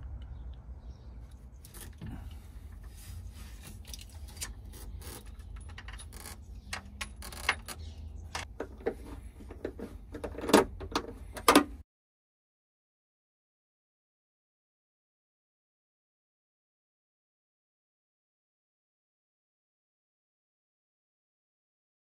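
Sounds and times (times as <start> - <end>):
metal bracket clicks and rattles: 3.8 - 9.0.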